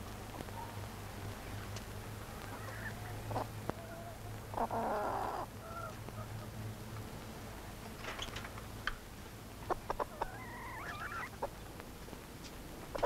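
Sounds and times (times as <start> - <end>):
chickens clucking: 2.4 - 6.6, 9.6 - 11.7.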